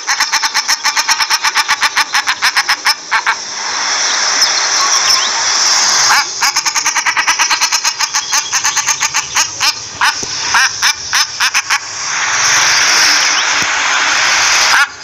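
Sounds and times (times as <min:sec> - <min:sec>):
duck calling rapidly: 0:00.0 - 0:03.5, 0:06.0 - 0:13.5, 0:14.5 - 0:15.0
steady hiss: 0:00.0 - 0:15.0.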